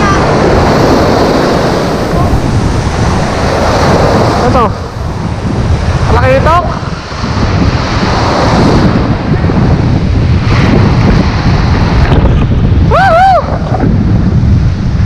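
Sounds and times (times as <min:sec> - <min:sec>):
surf: 0:00.0 - 0:15.0
wind buffeting microphone: 0:00.0 - 0:15.0.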